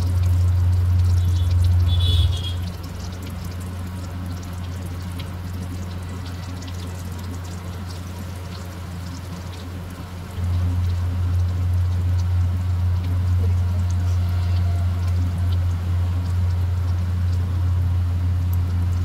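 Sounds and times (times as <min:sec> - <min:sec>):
food sizzling in hot oil: 0:00.0 - 0:19.0.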